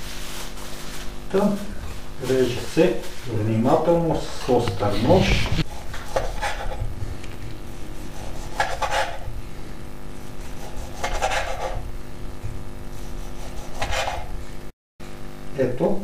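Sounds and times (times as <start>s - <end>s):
knife slicing on wooden board: 5.6s - 6.8s, 8.0s - 9.2s, 10.4s - 11.8s, 13.2s - 14.3s.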